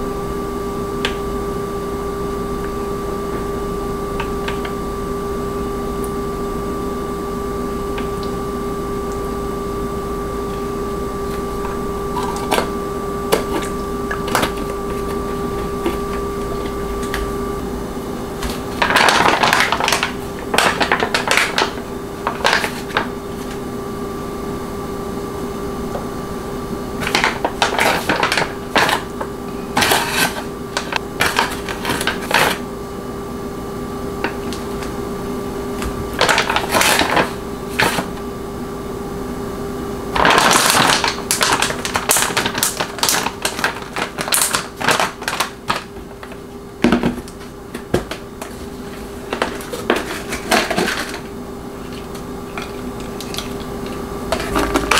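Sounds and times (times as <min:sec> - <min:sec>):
steady low hum: 0:00.0 - 0:43.0, 0:43.7 - 0:54.9
plastic bag crinkling: 0:11.6 - 0:17.3, 0:18.4 - 0:23.1, 0:27.0 - 0:29.2, 0:36.1 - 0:38.1, 0:40.2 - 0:54.9.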